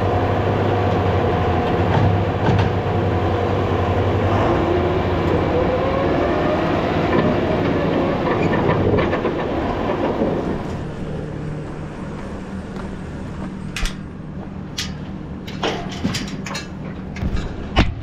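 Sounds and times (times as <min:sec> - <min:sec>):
engine running: 0:00.0 - 0:18.0
loud rattling clatter: 0:07.0 - 0:10.8.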